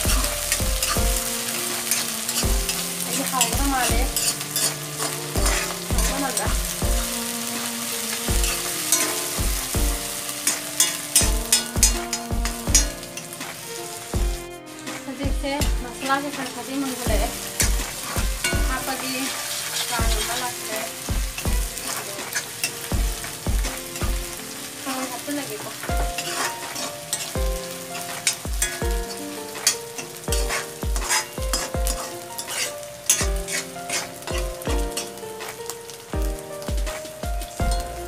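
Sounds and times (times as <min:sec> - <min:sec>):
metal spatula scraping a pan: 0:00.0 - 0:38.0
onions sizzling in hot oil: 0:00.0 - 0:38.0.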